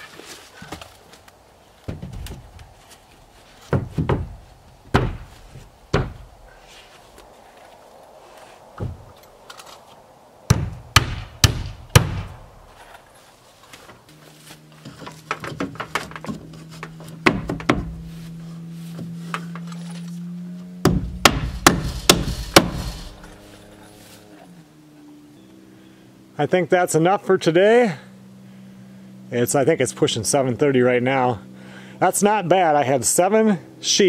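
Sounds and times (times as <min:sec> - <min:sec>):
hammer striking nails into wood: 0:04.9 - 0:05.3, 0:10.5 - 0:12.4, 0:17.2 - 0:17.9, 0:20.8 - 0:23.0.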